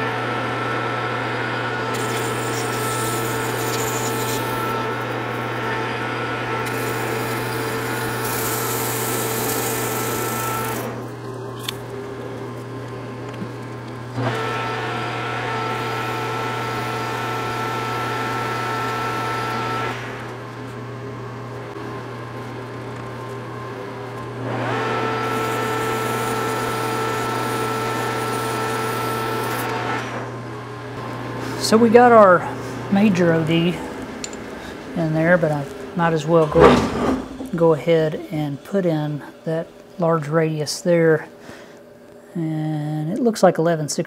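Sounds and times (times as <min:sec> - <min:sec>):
metal lathe whining: 0:00.0 - 0:12.2, 0:14.0 - 0:20.4, 0:23.9 - 0:30.2, 0:31.0 - 0:39.5.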